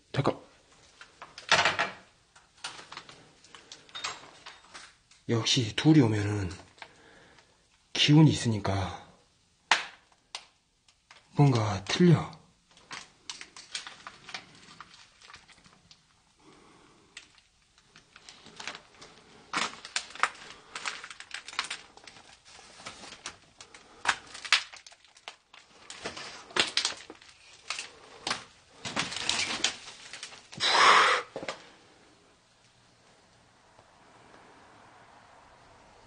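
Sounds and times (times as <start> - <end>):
footsteps crunching on debris: 24.1 - 30.6.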